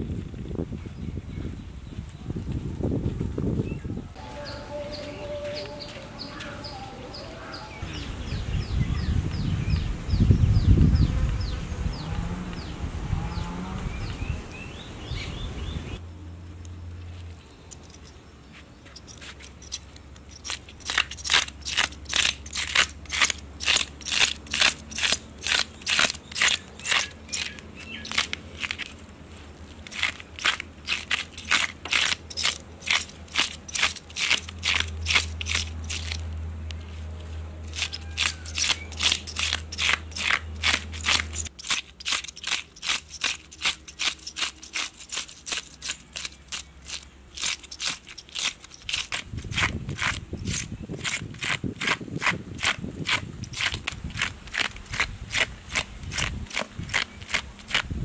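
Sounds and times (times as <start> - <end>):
fish scaler scraping scales: 17.7 - 18.2, 18.9 - 37.0, 37.6 - 58.0.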